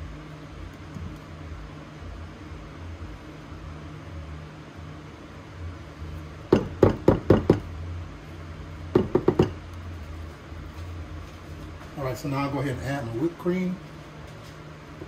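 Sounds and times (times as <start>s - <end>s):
rubber scraper knocking on dish: 6.5s - 7.7s, 9.0s - 9.6s.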